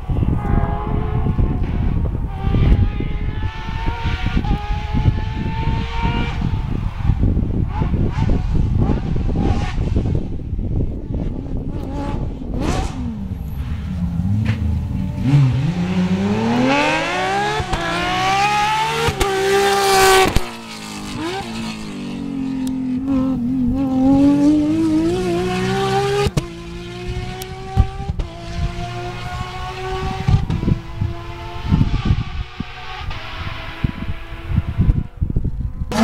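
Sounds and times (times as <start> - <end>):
car engine accelerating hard: 11.6 - 35.1.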